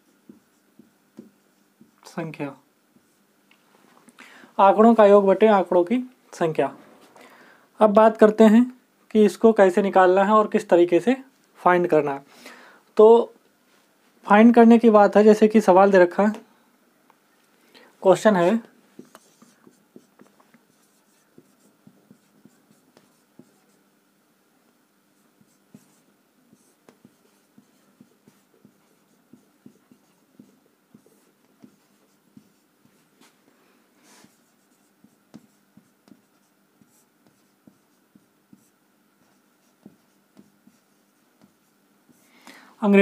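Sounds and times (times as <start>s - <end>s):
marker writing on whiteboard: 0.0s - 2.2s, 2.9s - 3.2s, 18.4s - 23.8s, 25.2s - 33.3s, 34.0s - 42.2s.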